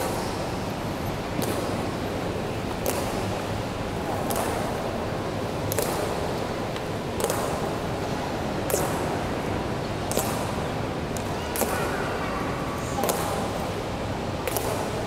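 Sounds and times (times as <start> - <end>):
hum of crowded hall: 0.0 - 15.0.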